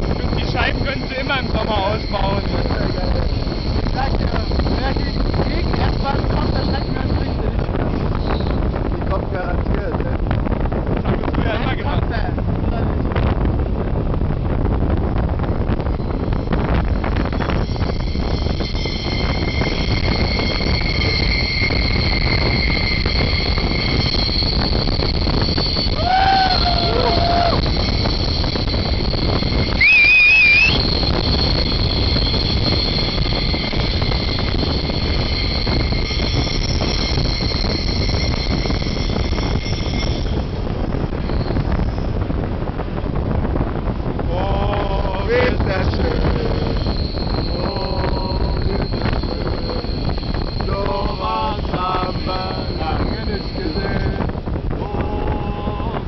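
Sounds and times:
loud wavering whistle: 0.0 - 8.8, 15.9 - 42.2, 44.4 - 56.0
train rumble and rushing air: 0.0 - 56.0
wheels squealing on rails: 0.0 - 56.0.

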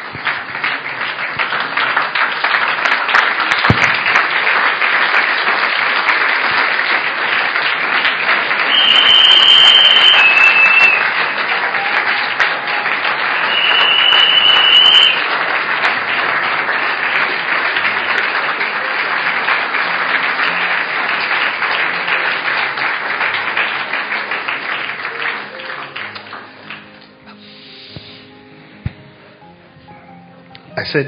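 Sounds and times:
audience applause: 0.0 - 27.3
high whistles: 8.7 - 11.1, 13.3 - 15.2.

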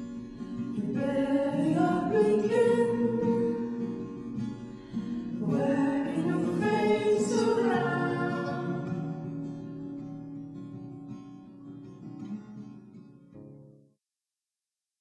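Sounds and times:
acoustic guitar: 0.0 - 14.0
layered singing voices: 0.7 - 9.4.

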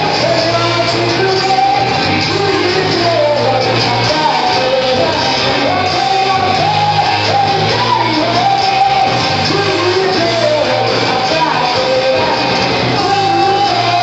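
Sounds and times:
person singing: 0.0 - 14.0
rock band playing live: 0.0 - 14.0.

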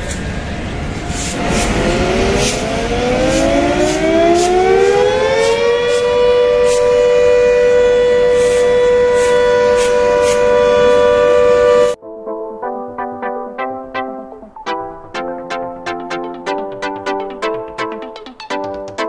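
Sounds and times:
locomotive machinery whine: 0.0 - 12.0.

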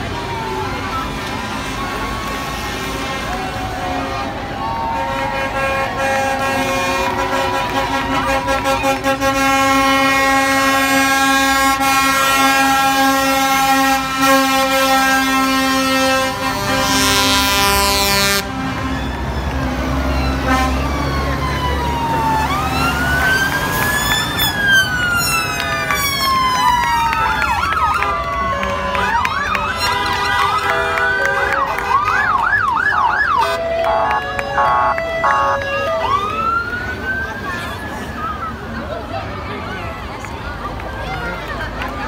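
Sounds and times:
emergency sirens wailing: 0.0 - 42.0
heavy vehicle engine rumble: 0.0 - 42.0
long steady horn note: 5.0 - 19.0, 20.4 - 21.0, 27.9 - 32.4, 33.2 - 36.1.

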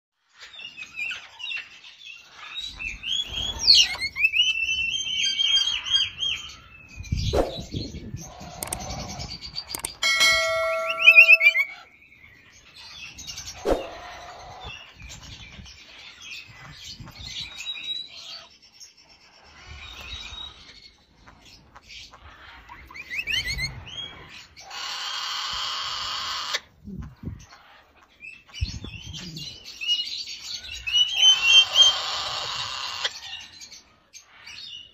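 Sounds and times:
parrots chirping and whistling: 0.4 - 12.0, 12.7 - 18.5, 19.4 - 34.9
parrot rasping screeches: 31.3 - 33.1.

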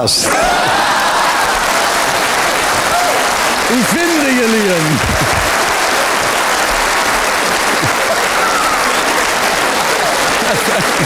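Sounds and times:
audience applauding: 0.0 - 11.0
audience laughter: 3.7 - 11.0.

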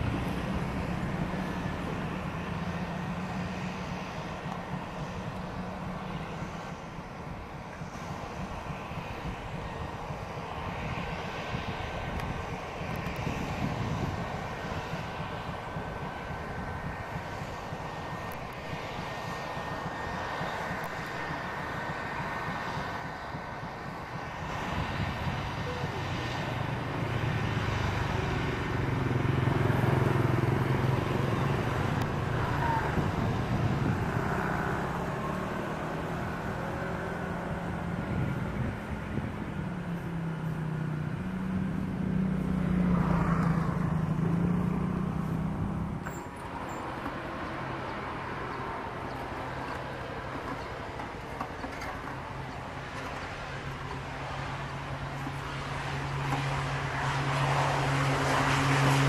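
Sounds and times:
turboprop engine droning: 0.0 - 59.0.

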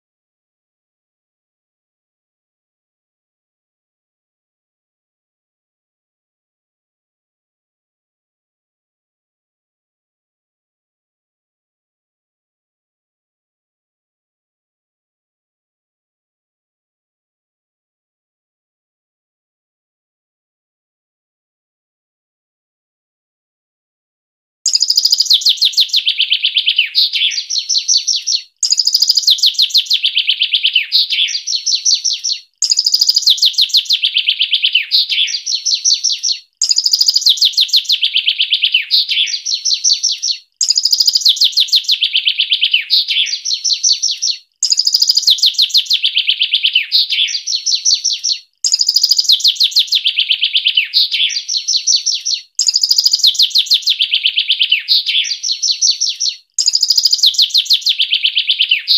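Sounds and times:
songbird song phrase: 24.7 - 58.9.

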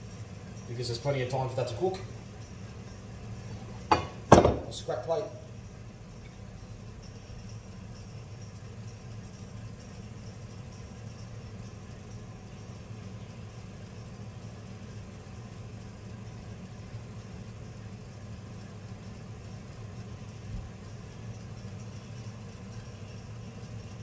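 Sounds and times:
low mechanical hum: 0.0 - 24.0.

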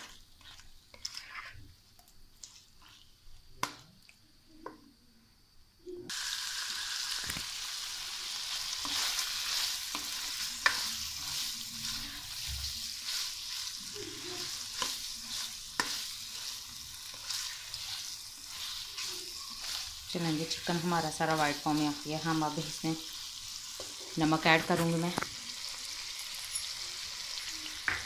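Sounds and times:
spatula scraping a pan: 0.0 - 1.7, 2.4 - 3.2, 8.6 - 21.6
chicken sizzling in butter: 0.0 - 1.8, 6.1 - 28.0.

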